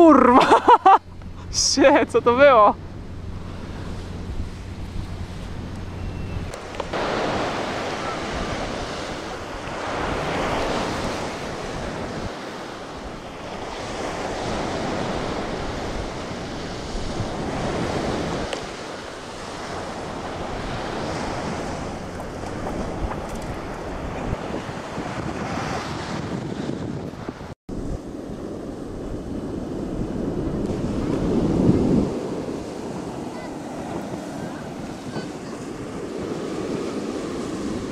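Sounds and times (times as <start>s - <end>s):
surf breaking: 0.0s - 26.1s
wind: 0.0s - 37.9s
wind buffeting microphone: 1.0s - 37.9s.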